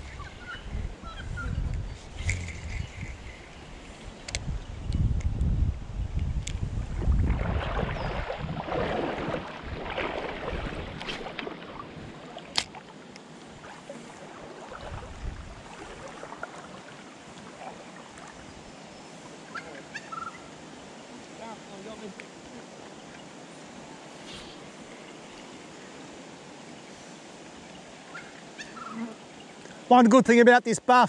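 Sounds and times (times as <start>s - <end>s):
wind buffeting microphone: 0.0s - 12.2s, 14.7s - 16.4s
water sloshing: 7.0s - 18.5s
river water rushing: 7.3s - 30.0s.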